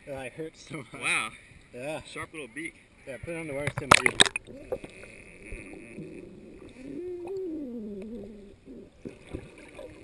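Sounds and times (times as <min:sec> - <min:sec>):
person humming through water: 0:04.2 - 0:10.0.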